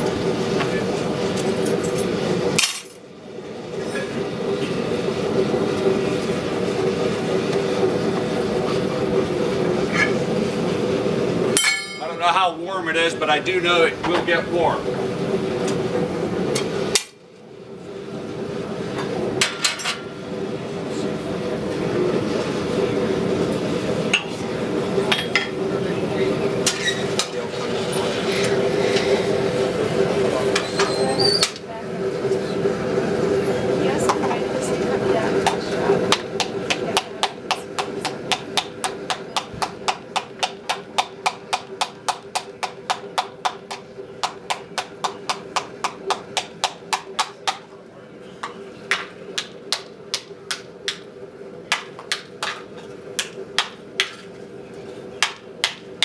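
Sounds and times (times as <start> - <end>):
gas forge burner hum: 0.0 - 56.0
hammer striking steel: 11.6 - 12.2, 53.2 - 54.3, 55.2 - 55.9.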